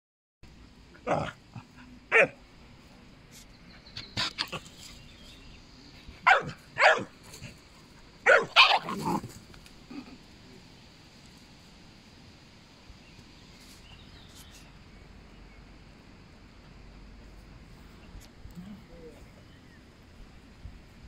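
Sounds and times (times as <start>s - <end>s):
dog barking: 2.1s - 2.4s, 6.2s - 7.1s, 8.2s - 9.0s.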